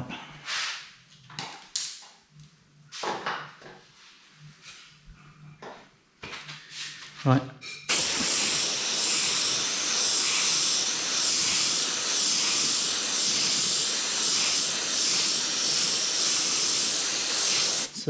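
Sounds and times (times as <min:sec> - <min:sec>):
airbrush spraying hiss: 0:07.9 - 0:18.0.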